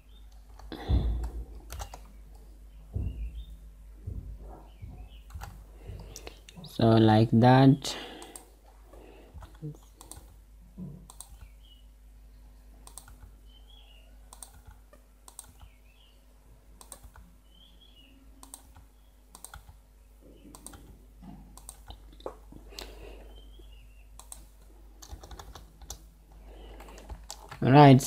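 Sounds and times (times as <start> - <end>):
keyboard keystrokes: 0.4 - 2.1, 5.2 - 6.2, 9.4 - 10.4, 12.8 - 13.3, 14.3 - 15.7, 16.8 - 17.2, 18.4 - 19.8, 20.5 - 20.9, 21.6 - 22.0, 24.2 - 26.0.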